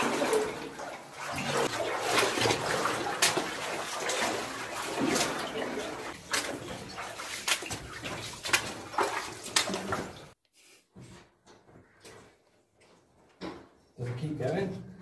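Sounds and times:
feet splashing through water: 0.0s - 10.4s.

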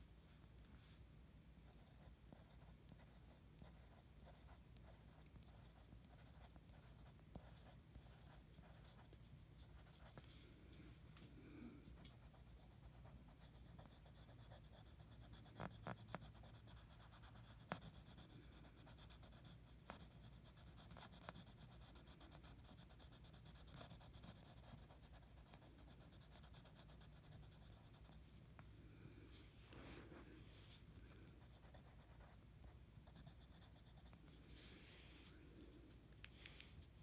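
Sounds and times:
pen scratching on paper: 1.7s - 9.1s, 12.0s - 28.2s.

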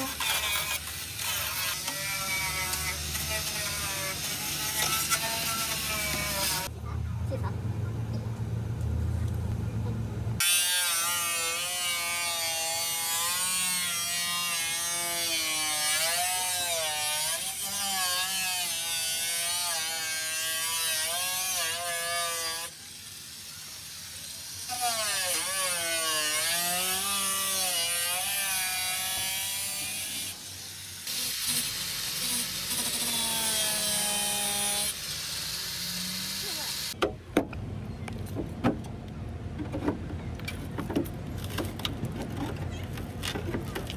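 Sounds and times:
angle grinder grinding metal: 0.0s - 6.7s, 10.4s - 37.0s.

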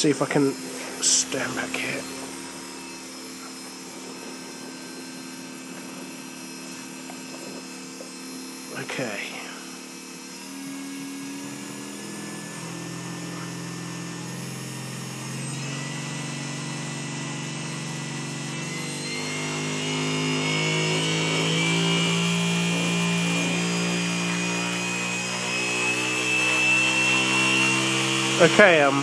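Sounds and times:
drone motor whine: 0.0s - 29.0s
propeller wash: 28.2s - 29.0s.

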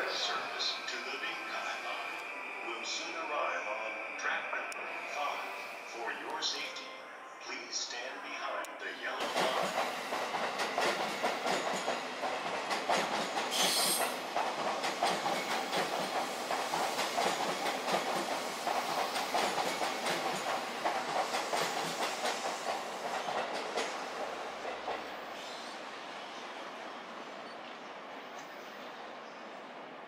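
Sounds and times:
train wheels clacking on rails: 9.1s - 25.7s.

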